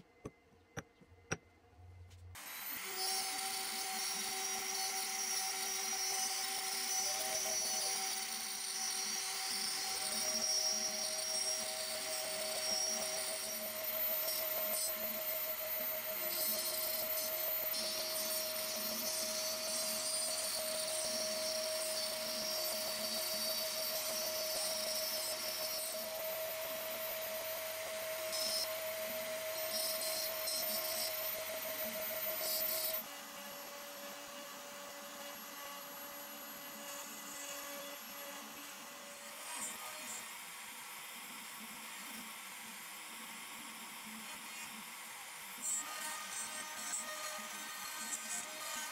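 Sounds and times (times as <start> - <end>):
router spindle whining: 2.4 - 41.4.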